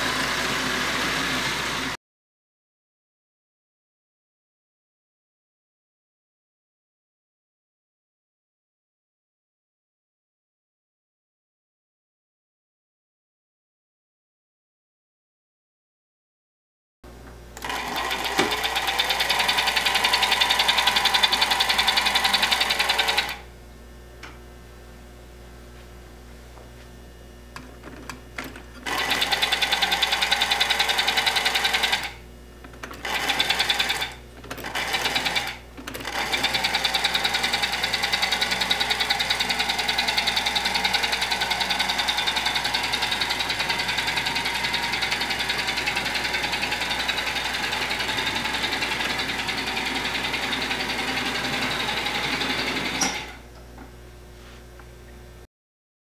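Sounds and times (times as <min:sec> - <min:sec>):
model train motor whirring: 0:33.0 - 0:53.2.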